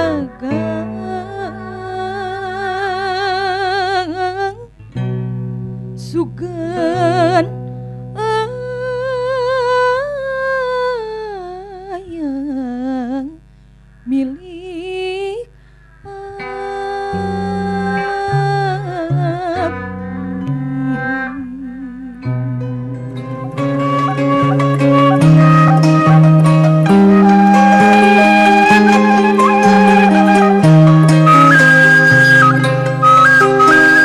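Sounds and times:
bowed string instrument: 0.0 - 4.3, 16.5 - 34.0
woman singing with vibrato: 0.0 - 4.7, 6.0 - 7.5, 8.2 - 13.4, 14.1 - 15.5, 16.1 - 22.6, 23.2 - 34.0
plucked zithers: 22.3 - 34.0.

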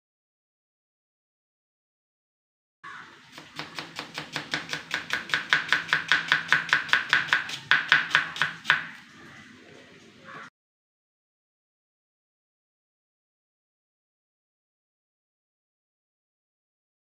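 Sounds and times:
knife chopping onions on board: 3.3 - 9.0.

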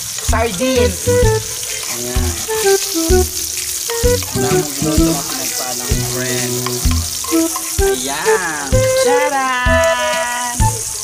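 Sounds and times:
vegetables sizzling in oil: 0.0 - 11.0
background music with bass line: 0.3 - 1.6, 4.0 - 5.3, 6.0 - 11.0.

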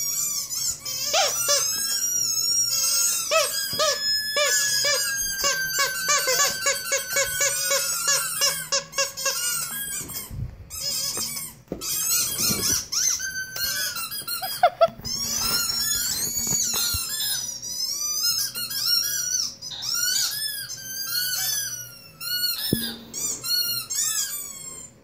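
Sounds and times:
squeaky dog toy squeaking: 0.0 - 25.0
thin high sliding tone: 22.7 - 23.8.

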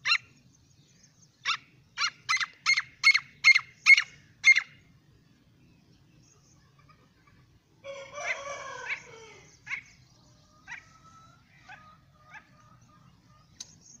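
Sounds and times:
bird chick calling: 0.0 - 4.9, 6.3 - 14.0
sharp click: 13.6 - 13.8.

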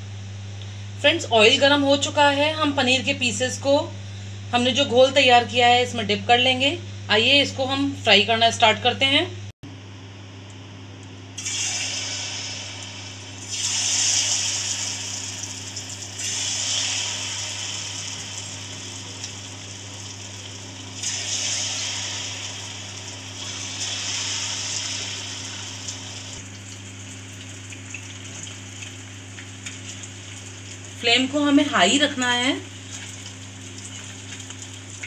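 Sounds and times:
deep-frying sizzle in oil: 11.4 - 35.0.

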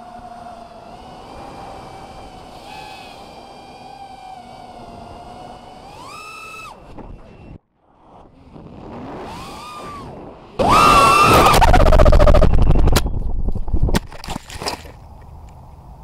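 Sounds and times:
drone motors whining: 0.0 - 13.9
drone crashing into grass: 10.9 - 14.1.

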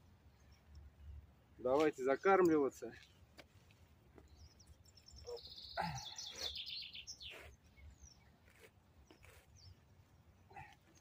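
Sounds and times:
songbird singing: 0.0 - 11.0.

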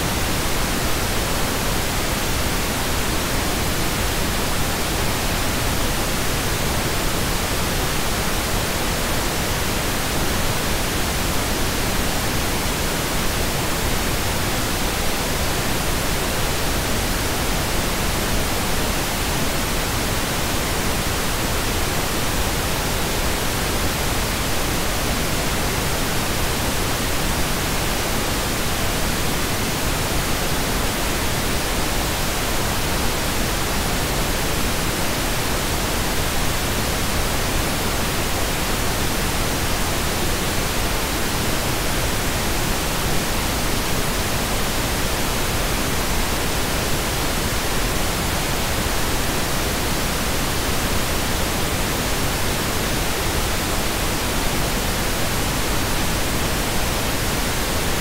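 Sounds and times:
television static hiss: 0.0 - 58.0.

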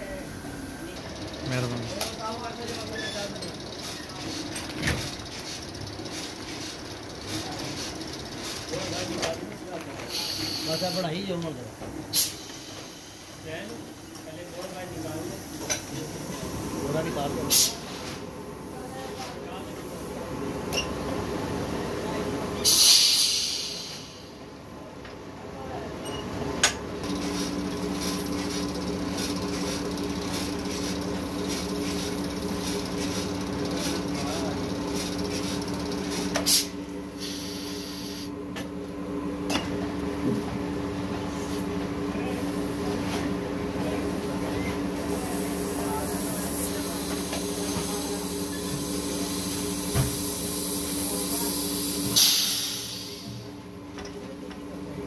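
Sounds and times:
compressed-air hiss: 10.1 - 10.9, 12.1 - 13.4, 17.5 - 18.0, 22.6 - 24.4, 36.4 - 38.3, 45.3 - 53.3.

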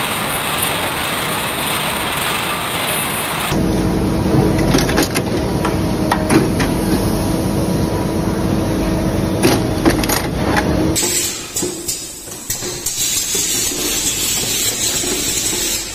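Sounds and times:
machine humming and rumbling: 0.0 - 11.1
machine clicks and clacks: 9.4 - 15.9.

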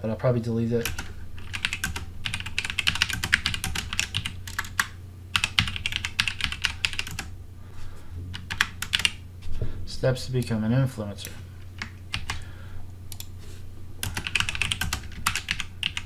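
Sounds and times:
low steady hum: 0.0 - 16.0
typing on a keyboard: 0.8 - 7.3, 8.4 - 9.2, 11.8 - 12.4, 14.0 - 16.0.

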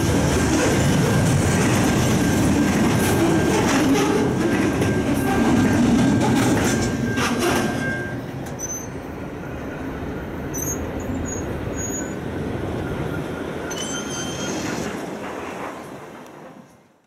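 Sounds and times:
freight train rolling: 0.0 - 17.0
high wheel squeal: 2.0 - 15.0.

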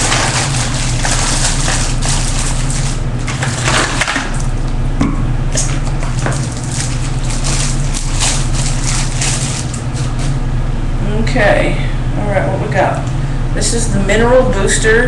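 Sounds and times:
packaging rustling and crinkling: 0.0 - 4.5, 5.8 - 10.4
steady low hum: 0.0 - 15.0.

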